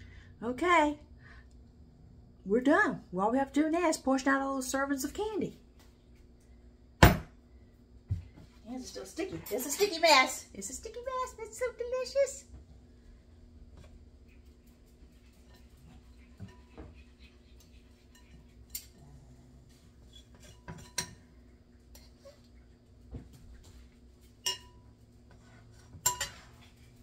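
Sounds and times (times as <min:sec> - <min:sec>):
utensils clinking against glass bowl: 0:20.1 - 0:21.3, 0:24.4 - 0:24.9, 0:26.0 - 0:26.7.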